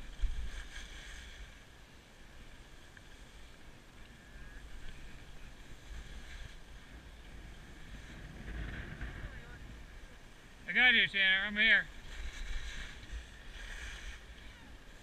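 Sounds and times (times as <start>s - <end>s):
skis hissing over snow: 0.0s - 1.7s, 5.4s - 7.0s, 11.1s - 15.0s
wind buffeting microphone: 4.2s - 10.6s.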